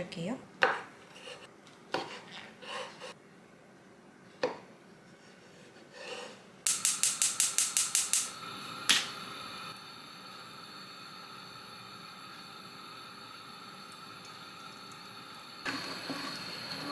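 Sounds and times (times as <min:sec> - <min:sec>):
knife cutting on wooden board: 0:00.6 - 0:03.2
gas stove igniter clicking: 0:06.7 - 0:09.2.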